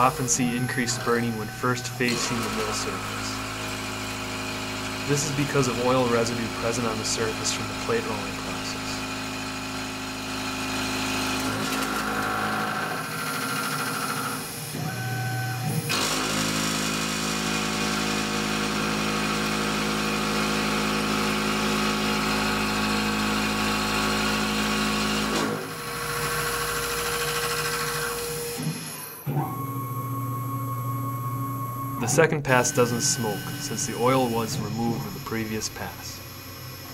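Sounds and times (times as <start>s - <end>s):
spindle hum: 0.0s - 9.4s, 29.4s - 36.9s
milling machine cutting steel: 0.0s - 29.6s, 32.0s - 36.9s.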